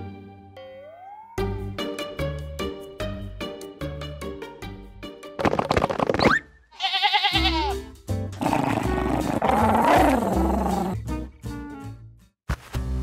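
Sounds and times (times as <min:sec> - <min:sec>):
cartoon background music: 0:00.0 - 0:06.7, 0:07.3 - 0:13.0
wavering bleat-like animal call: 0:06.7 - 0:07.8.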